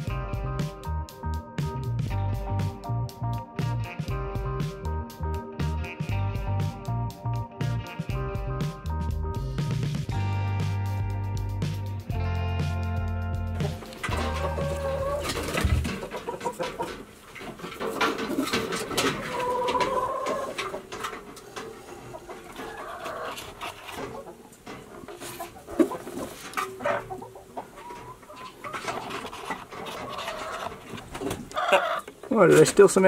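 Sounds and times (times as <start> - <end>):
music: 0.0 - 16.0
hens clucking: 13.4 - 33.0.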